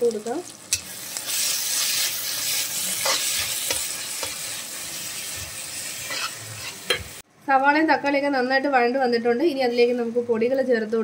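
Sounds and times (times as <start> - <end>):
masala sizzling in hot oil: 0.0 - 7.2
metal spatula scraping a pan: 0.7 - 7.2.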